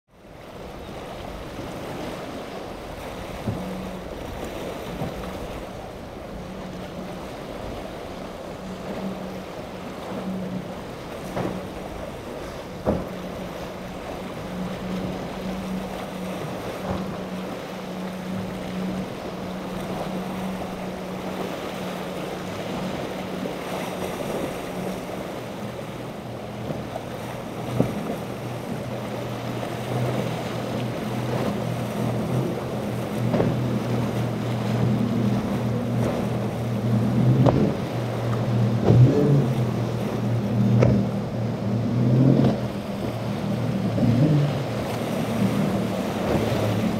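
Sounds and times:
deep engine drone: 0.1 - 46.9
outboard motor running: 0.1 - 46.9
surf and spray: 0.2 - 46.9
wind on microphone: 26.5 - 46.9.

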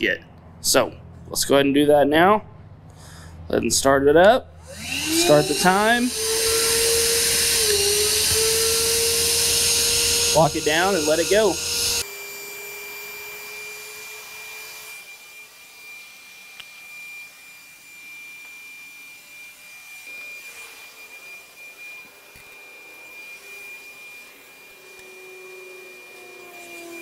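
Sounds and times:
handheld vacuum motor whine: 4.6 - 27.0.

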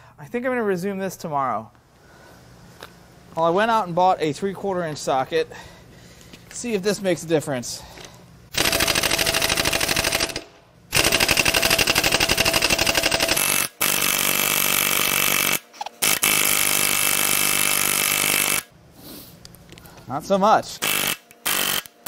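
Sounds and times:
pneumatic impact wrench hammering: 8.5 - 18.7, 20.8 - 22.0.

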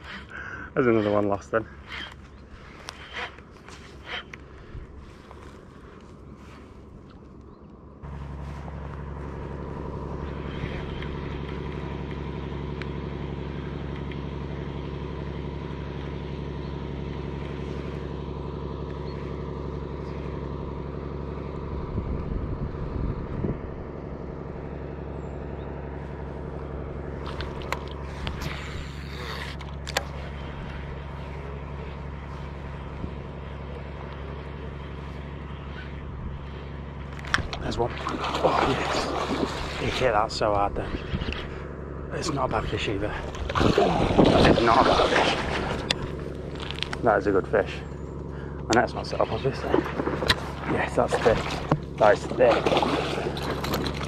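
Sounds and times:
engine droning steadily: 0.0 - 54.0
short clicks and rustles: 27.2 - 31.4, 43.2 - 47.1, 48.7 - 54.0.

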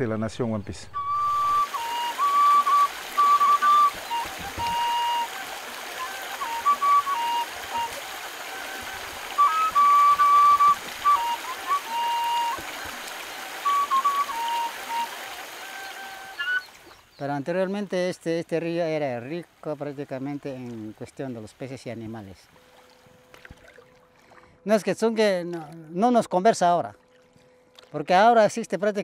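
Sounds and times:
stream running over rocks: 1.0 - 24.1.

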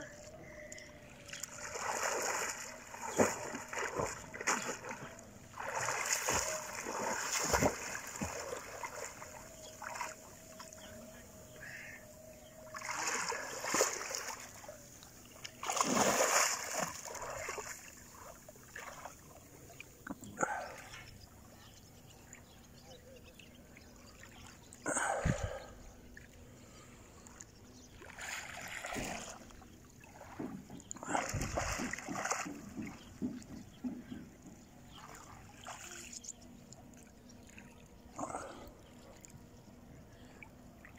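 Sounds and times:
swimming strokes splashing water: 0.1 - 19.8, 27.8 - 39.4.

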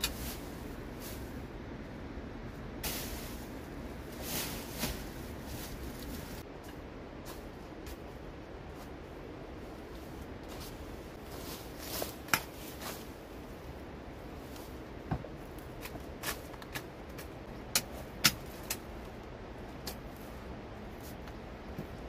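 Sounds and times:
footsteps over rock and brush: 9.8 - 13.4.

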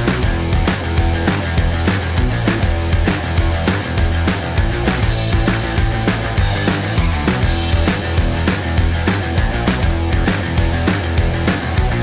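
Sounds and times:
fast drum beat: 0.0 - 12.0
heavy bass line: 0.0 - 12.0
rock music: 0.0 - 12.0.

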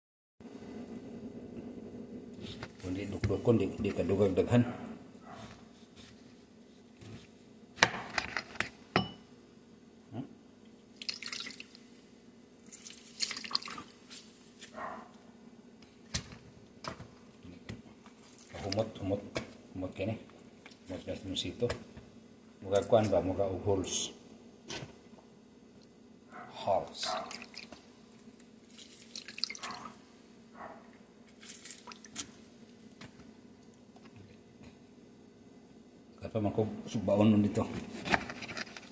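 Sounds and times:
juice dripping into bowl: 10.9 - 11.9, 12.6 - 14.1, 27.2 - 30.0, 31.3 - 32.4
wet squelches of lemon squeezed: 11.0 - 11.9, 12.6 - 14.7, 27.0 - 27.8, 28.6 - 30.0, 31.3 - 32.5.

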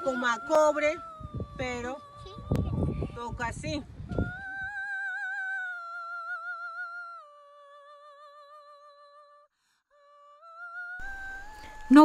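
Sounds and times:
slow melody with vibrato: 11.0 - 12.0.

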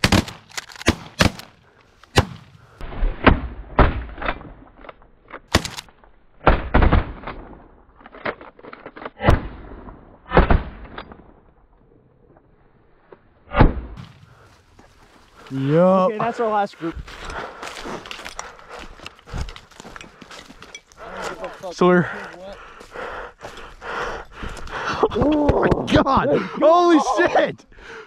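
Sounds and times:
shotguns firing: 0.0 - 2.6.

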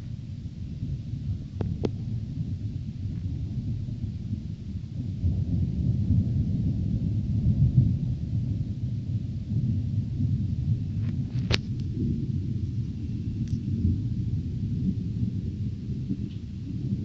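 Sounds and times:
thunder rumbling: 0.0 - 17.0.

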